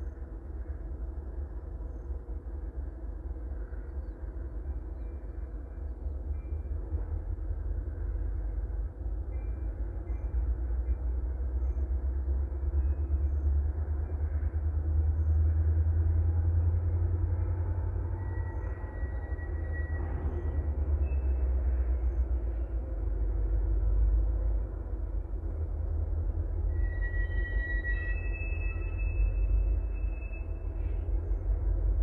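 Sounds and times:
distant diesel locomotives rumbling: 0.0 - 32.0
faint wheel squeals: 18.0 - 22.8, 26.6 - 31.6.

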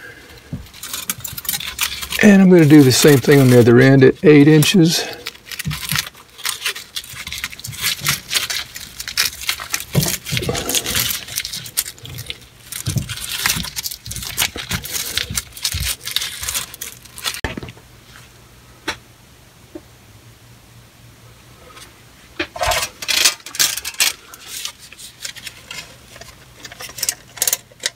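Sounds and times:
metal hose clamps clicking and rattling: 0.7 - 3.7, 25.2 - 27.9.

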